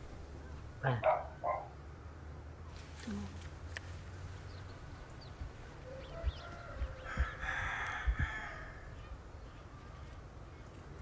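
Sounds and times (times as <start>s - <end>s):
rooster crowing: 5.8s - 8.9s.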